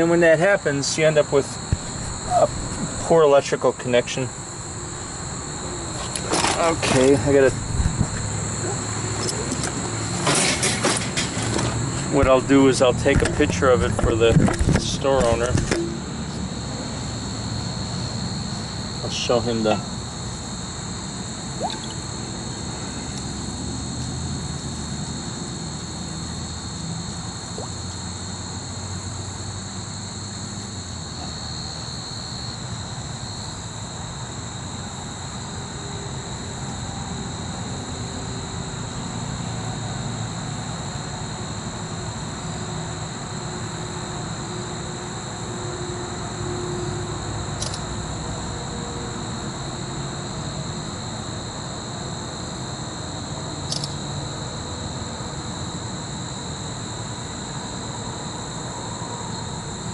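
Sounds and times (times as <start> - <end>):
low rumble of machinery: 0.0 - 32.6
high insect chorus: 0.0 - 59.9
sharp click: 47.6 - 47.8, 53.7 - 54.0.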